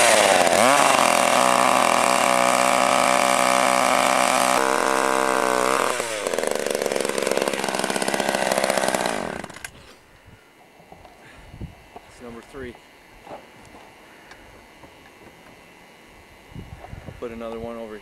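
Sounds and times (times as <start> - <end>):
ice auger engine running: 0.0 - 9.9.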